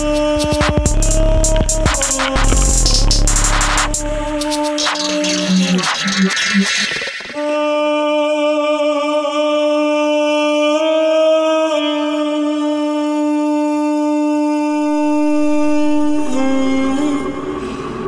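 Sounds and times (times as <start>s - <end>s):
long held musical note: 14.8s - 18.0s.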